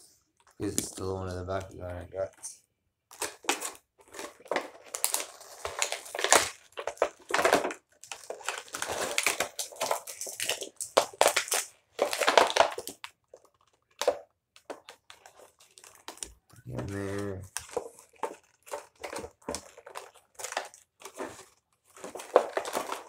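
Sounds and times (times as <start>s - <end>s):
plastic packaging crinkling: 3.1s - 23.0s.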